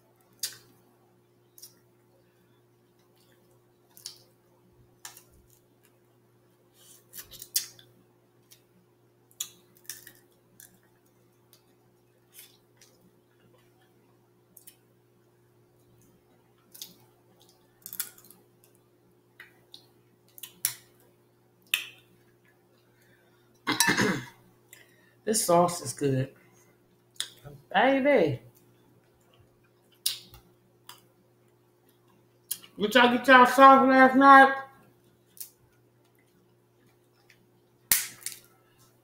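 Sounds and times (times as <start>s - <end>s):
faint steady hum: 0.0s - 39.0s
shells cracking and snapping: 9.4s - 10.8s, 16.7s - 18.7s, 19.4s - 20.9s, 37.2s - 38.5s.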